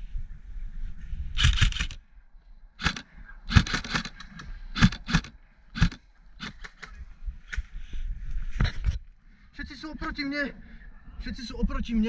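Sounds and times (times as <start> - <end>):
sharp clicks and knocks: 2.8 - 7.6.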